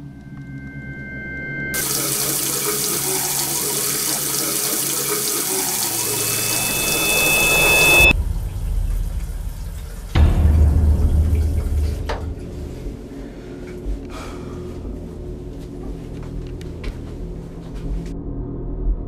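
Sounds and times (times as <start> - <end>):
faucet water splashing into sink: 1.8 - 12.6.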